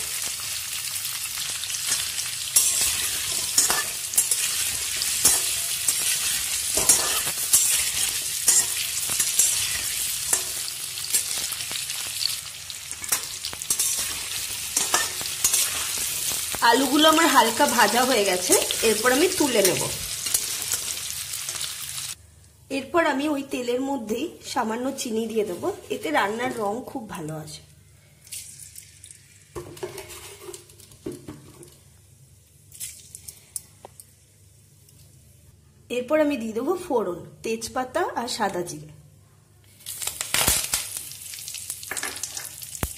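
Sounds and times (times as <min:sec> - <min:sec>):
potatoes sizzling in oil: 0:00.0 - 0:22.2, 0:39.7 - 0:42.9
spatula scraping pan: 0:02.6 - 0:11.5, 0:12.9 - 0:16.3.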